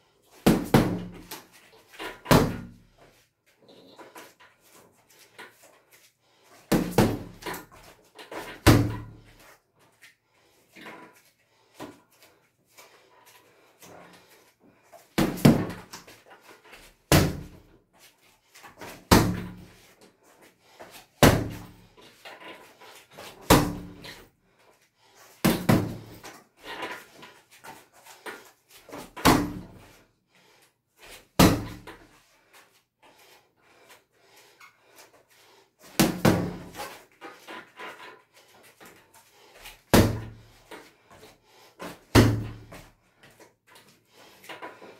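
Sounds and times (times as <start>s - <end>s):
punches thudding on punching bag: 0.5s - 1.3s, 2.3s - 2.8s, 6.7s - 7.5s, 15.2s - 15.9s, 17.1s - 17.6s, 21.2s - 21.7s, 23.4s - 24.0s, 25.4s - 26.2s, 29.2s - 29.7s, 31.4s - 31.9s, 36.0s - 36.8s, 39.9s - 40.4s, 42.1s - 42.7s.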